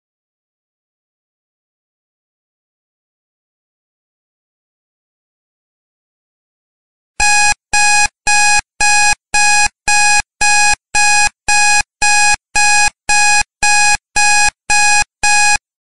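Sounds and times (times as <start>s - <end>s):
timer alarm beeping: 7.2s - 15.6s.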